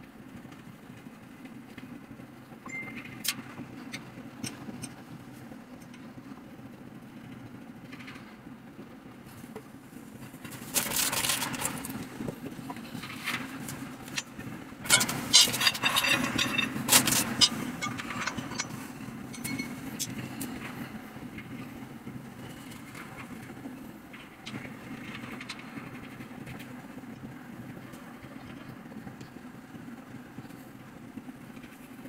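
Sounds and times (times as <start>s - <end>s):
steady low hum: 0.0s - 32.0s
metal furniture parts clattering: 14.9s - 19.8s.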